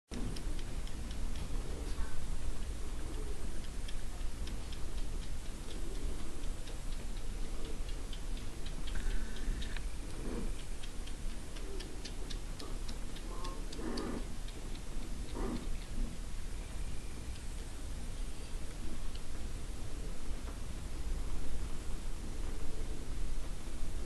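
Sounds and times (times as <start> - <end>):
kittens suckling clicks: 0.1 - 18.1.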